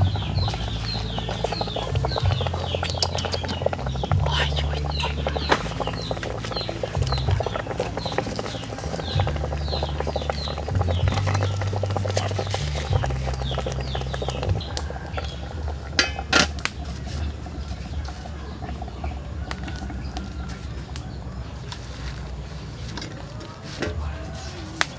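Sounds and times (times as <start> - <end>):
small bird chirping: 0.0 - 15.6
metal pot lid clanking: 15.9 - 16.7.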